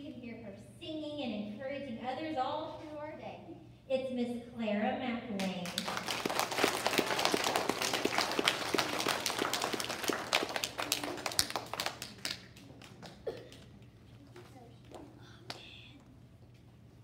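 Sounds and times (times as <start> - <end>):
audience applauding: 5.6 - 13.6.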